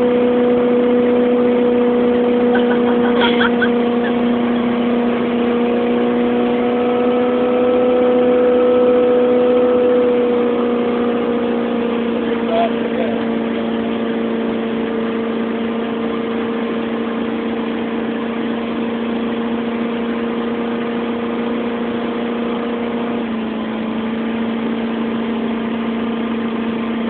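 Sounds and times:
motorboat engine drone: 0.0s - 27.0s.

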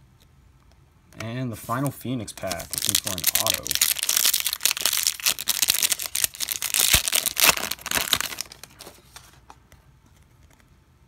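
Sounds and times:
foil wrapper tearing and crinkling: 2.4s - 8.9s.

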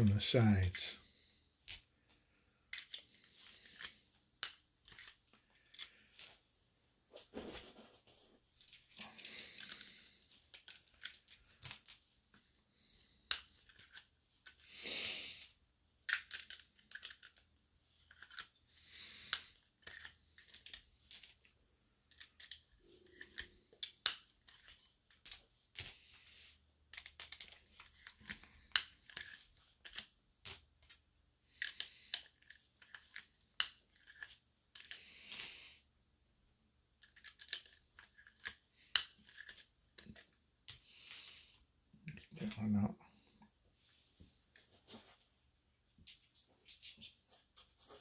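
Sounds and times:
metal cartridges clinking: 2.7s - 6.4s, 7.4s - 12.0s, 13.3s - 15.5s, 16.1s - 17.4s, 18.0s - 18.6s, 19.8s - 21.5s, 22.1s - 26.3s, 26.9s - 31.0s, 37.0s - 42.7s, 44.6s - 48.0s
soft rustles: 6.4s - 10.9s, 43.6s - 48.0s.

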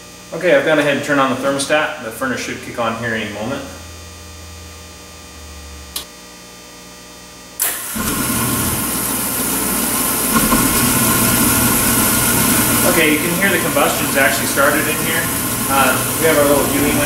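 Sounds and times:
low hum: 1.9s - 6.1s, 8.0s - 17.0s
oil burner combustion roaring: 7.6s - 17.0s.

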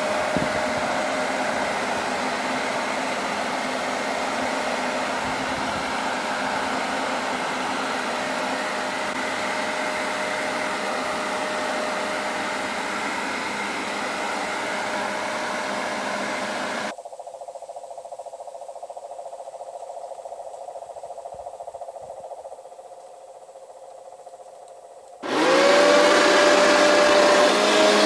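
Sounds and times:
leaf blower running: 0.0s - 16.9s, 25.2s - 28.0s.

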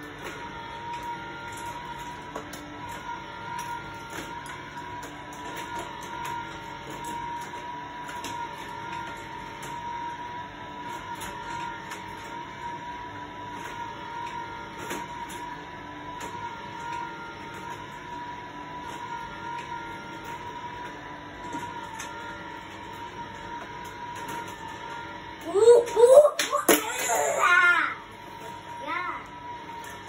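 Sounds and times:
toy cars clicking and rattling: 0.0s - 10.1s, 13.5s - 18.1s, 18.8s - 27.8s
toy car lift motor whine: 0.0s - 30.0s.

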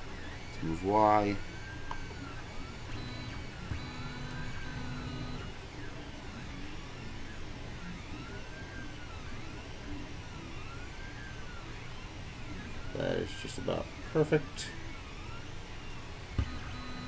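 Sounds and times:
stepper motor whining: 2.9s - 5.5s.

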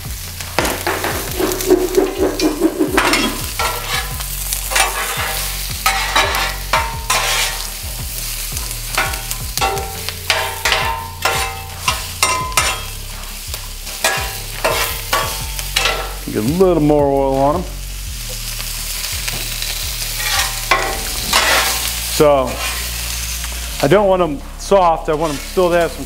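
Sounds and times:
vegetables sizzling in oil: 0.0s - 26.0s
metal spatulas scraping and clanking: 0.6s - 7.8s, 8.9s - 16.3s, 19.5s - 23.0s.

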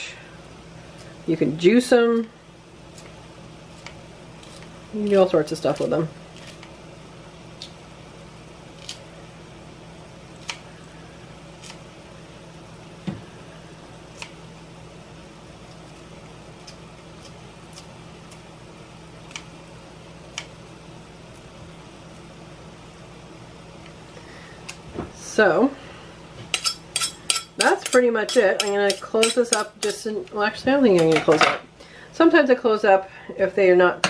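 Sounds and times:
steady low hum: 0.0s - 34.0s
scissors snipping pepper: 8.8s - 9.1s, 16.6s - 18.4s, 19.3s - 19.5s, 26.5s - 30.0s.

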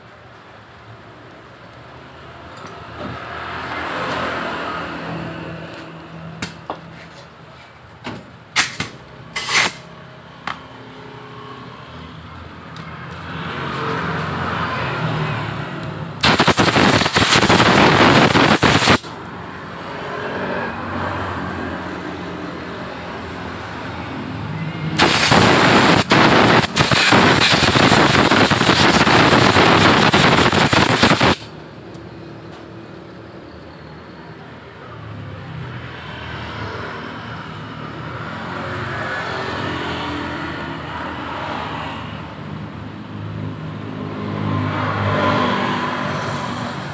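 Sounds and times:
compressed air blow gun hissing: 16.2s - 19.1s, 25.0s - 31.4s.

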